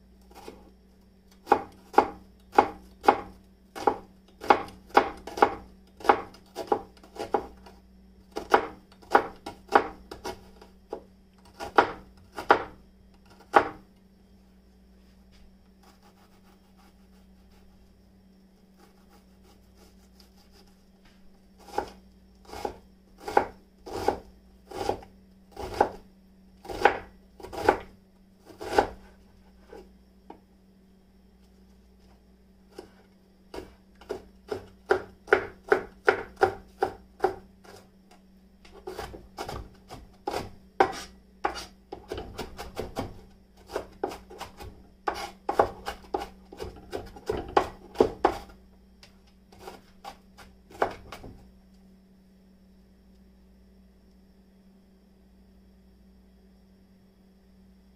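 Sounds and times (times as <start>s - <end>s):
knife chopping onion on board: 1.4s - 7.6s, 8.3s - 13.8s, 21.6s - 26.0s, 26.6s - 29.8s, 32.7s - 37.8s, 38.7s - 48.6s, 49.5s - 51.4s.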